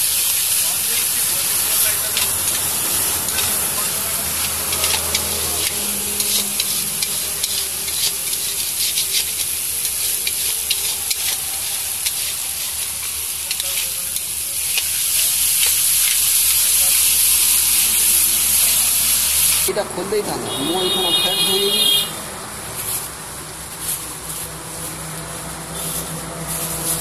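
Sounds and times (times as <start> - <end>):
curry sizzling in a pan: 0.0 - 27.0
metal spatula scraping: 1.0 - 16.2
spatula clicking against pan: 4.3 - 11.4.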